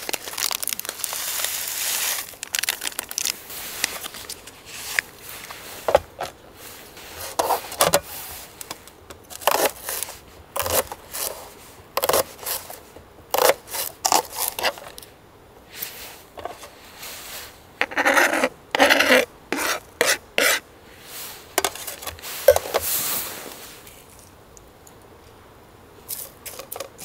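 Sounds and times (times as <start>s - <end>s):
slices scraped off board: 9.3s - 12.8s, 13.4s - 14.9s, 17.8s - 20.6s.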